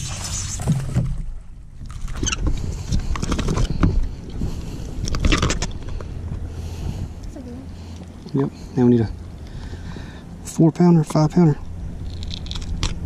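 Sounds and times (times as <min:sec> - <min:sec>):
splashes and knocks: 0:00.0 - 0:04.1
low steady hum: 0:00.0 - 0:13.0.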